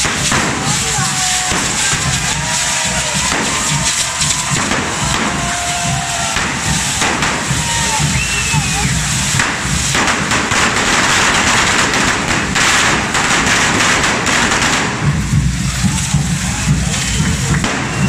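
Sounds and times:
firework fountains hissing and crackling: 0.0s - 18.0s
steady drum beat: 0.0s - 18.0s.

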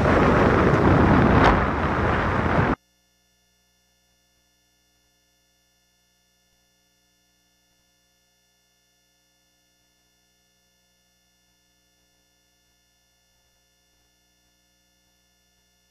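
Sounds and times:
wind rushing over microphone: 0.0s - 2.8s
faint steady hum: 0.0s - 15.9s.

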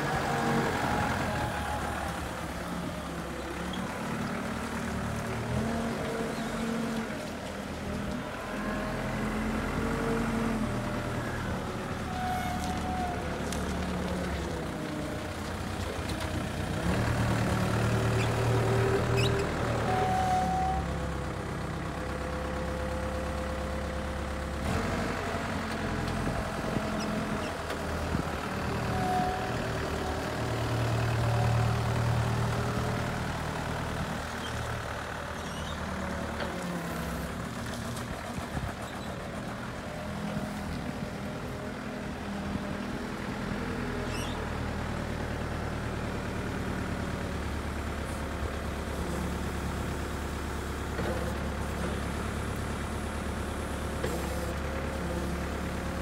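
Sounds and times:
forklift diesel engine revving: 0.0s - 14.1s, 16.4s - 56.0s.

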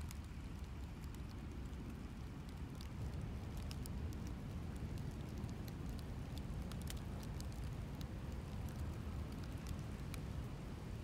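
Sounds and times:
faint crackles and ticks: 0.0s - 11.0s
low steady rumble: 0.0s - 11.0s.

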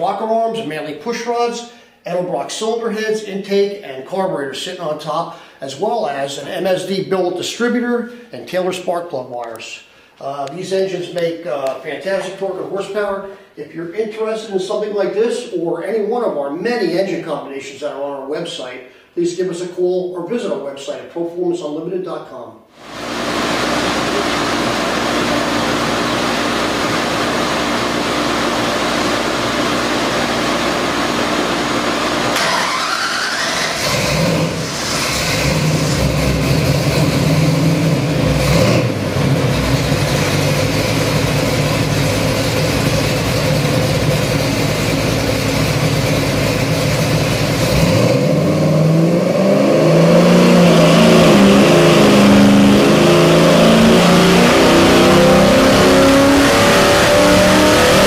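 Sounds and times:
engine running on dyno: 22.8s - 58.0s.

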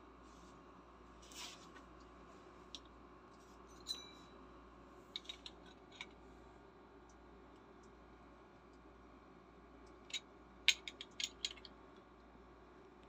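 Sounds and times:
small metal parts clicking: 5.2s - 6.1s, 10.1s - 11.7s.

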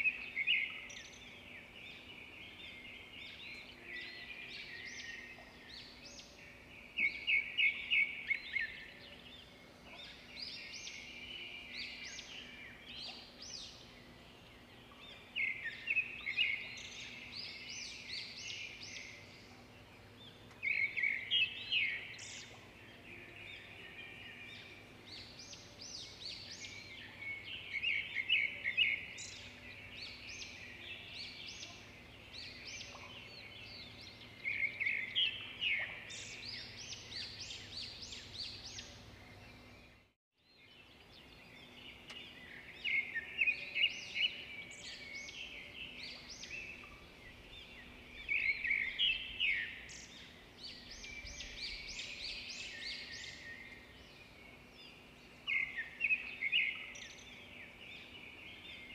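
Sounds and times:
small birds chirping: 0.0s - 58.9s.

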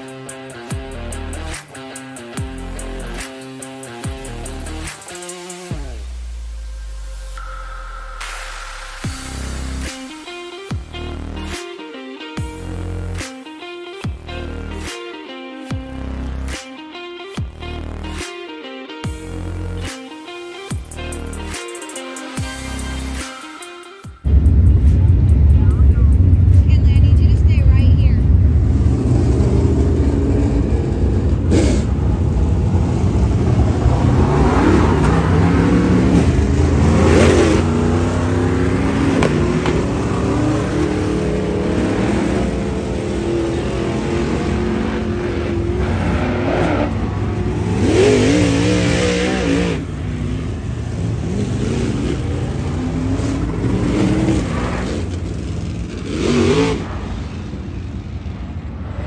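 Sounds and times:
race car engines revving: 0.0s - 7.6s, 24.2s - 59.0s.

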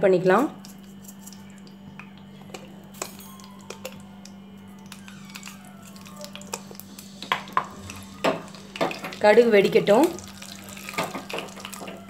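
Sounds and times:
seeds clicking in hot oil: 3.0s - 12.0s.

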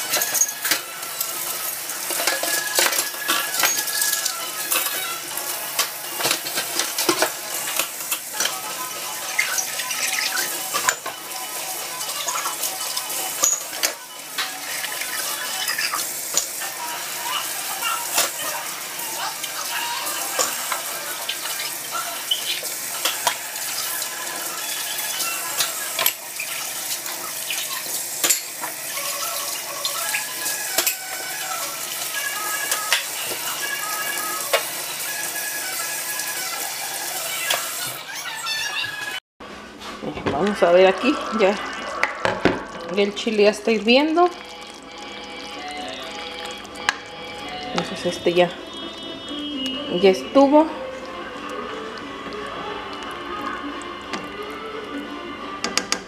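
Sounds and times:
dishes and cutlery clinking: 0.0s - 0.8s, 2.1s - 5.0s, 9.4s - 11.2s, 13.4s - 15.0s, 25.6s - 26.6s, 28.2s - 28.7s.

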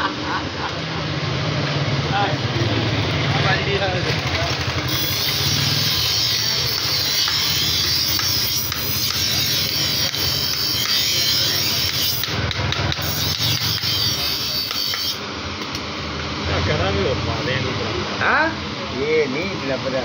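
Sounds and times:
bench grinder sharpening knife: 4.9s - 15.2s.

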